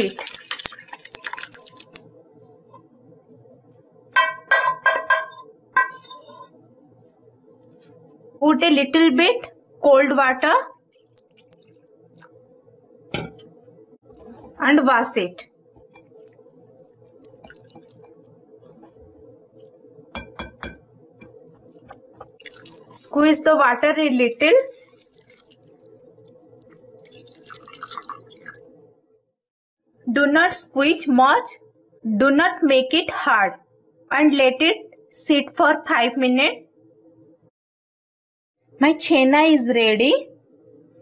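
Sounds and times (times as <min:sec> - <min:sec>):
whey splashing into strainer: 0:00.0 - 0:02.0, 0:22.3 - 0:23.2, 0:24.4 - 0:26.0, 0:26.6 - 0:28.6.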